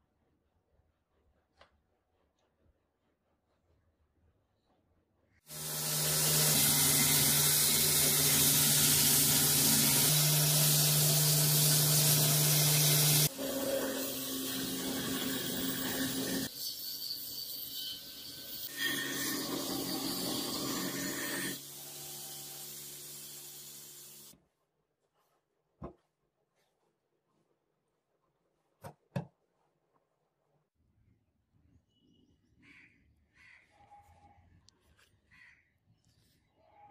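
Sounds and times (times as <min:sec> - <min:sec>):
belt grinder grinding metal: 0:05.5 - 0:24.3.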